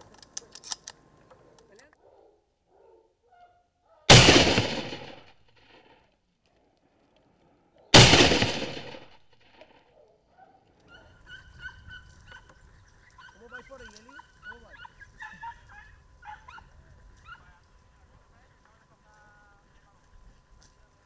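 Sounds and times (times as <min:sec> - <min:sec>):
shotgun shots: 0:04.1 - 0:05.9, 0:08.0 - 0:09.3.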